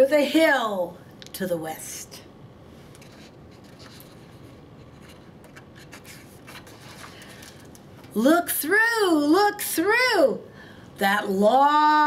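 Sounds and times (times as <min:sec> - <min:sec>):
faint paper rustling: 0:02.9 - 0:08.1
book pages turning: 0:03.0 - 0:07.8.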